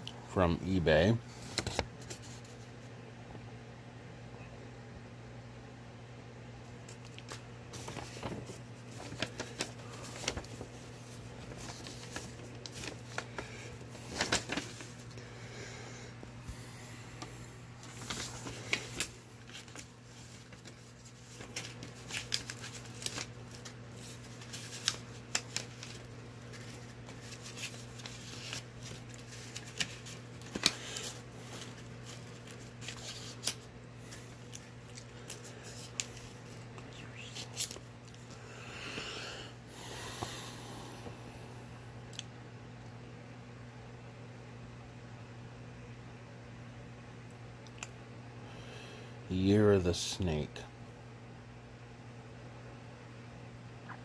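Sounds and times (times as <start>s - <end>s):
steady low hum: 0.0s - 54.0s
paper rustling and crinkling: 1.0s - 2.8s, 6.7s - 15.3s, 17.2s - 38.4s.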